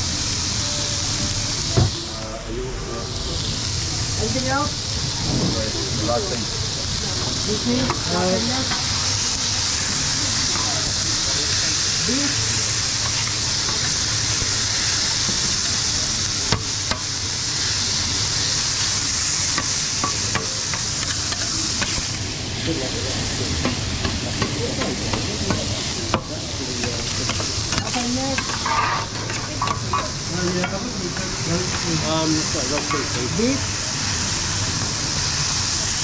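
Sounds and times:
vegetables sizzling on griddle: 0:00.0 - 0:36.0
metal spatulas scraping: 0:27.3 - 0:30.2.

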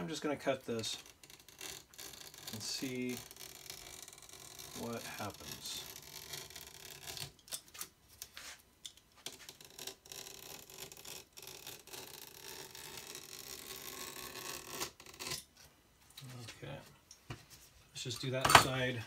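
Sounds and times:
blade cutting cloth: 0:00.8 - 0:07.9, 0:09.3 - 0:15.5.

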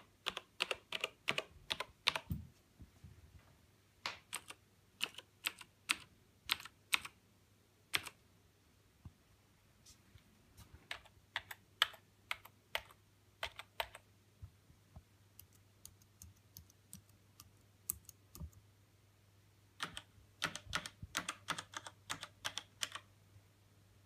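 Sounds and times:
rapid typing keystrokes: 0:00.0 - 0:02.3, 0:04.3 - 0:07.2, 0:07.9 - 0:08.2, 0:10.9 - 0:14.0, 0:15.4 - 0:18.6, 0:19.8 - 0:23.1.

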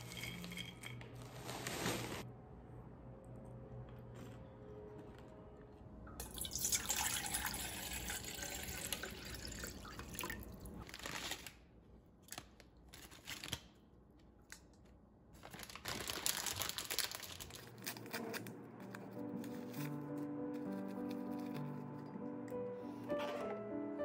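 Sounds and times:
water running into metal bowl: 0:06.2 - 0:10.3.

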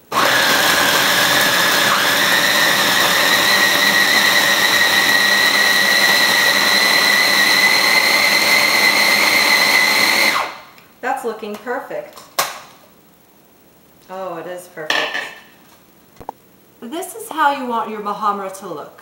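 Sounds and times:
food processor motor whine: 0:00.0 - 0:10.6.

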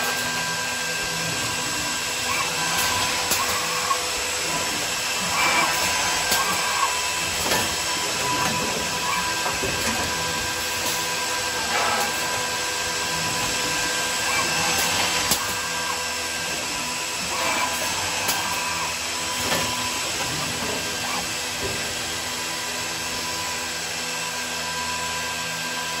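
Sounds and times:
drilling machine whining: 0:00.0 - 0:26.0
sharp mechanical clicks and knocks: 0:05.2 - 0:12.3.

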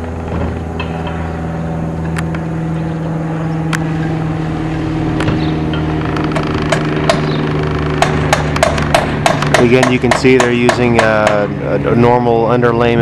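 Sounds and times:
engine running steadily: 0:00.0 - 0:13.0
sharp engine knock: 0:05.2 - 0:11.5.

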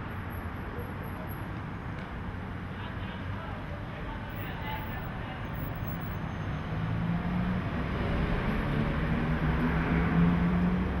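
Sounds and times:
cars driving past: 0:04.3 - 0:11.0.

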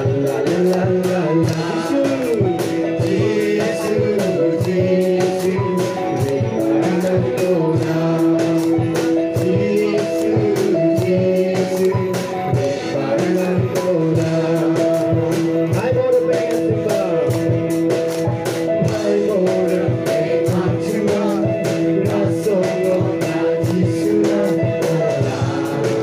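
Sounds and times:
instrumental backing with beat: 0:00.0 - 0:26.0
person singing gospel song: 0:00.0 - 0:26.0.

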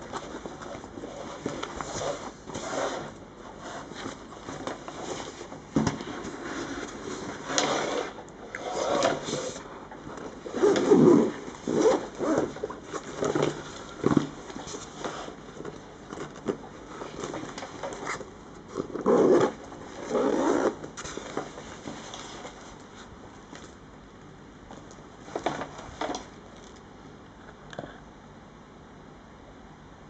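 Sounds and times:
fabric rustling: 0:00.0 - 0:23.1
zipper being pulled open: 0:06.6 - 0:09.6, 0:10.4 - 0:13.5, 0:18.8 - 0:20.8.

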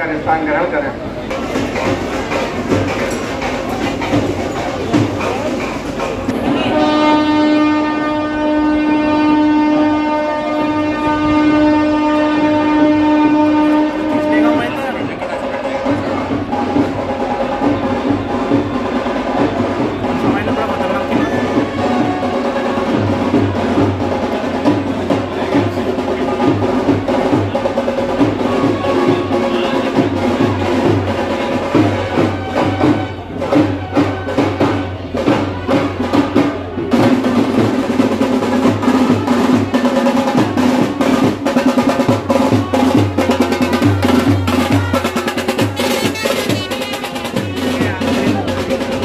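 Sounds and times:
fast rhythmic drumming: 0:01.3 - 0:07.1, 0:14.0 - 0:49.0
sustained pitched instruments: 0:06.4 - 0:49.0.

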